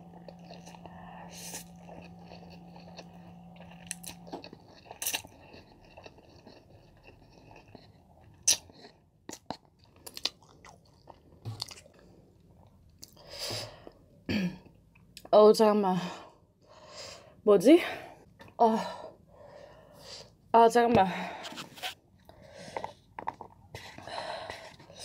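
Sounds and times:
chewing with wet mouth clicks: 0.0s - 13.2s.

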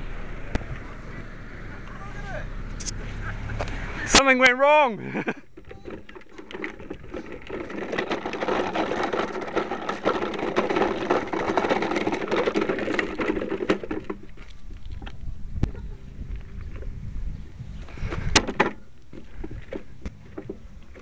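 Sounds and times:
bicycle rattling on gravel: 5.2s - 17.1s, 17.7s - 21.0s.

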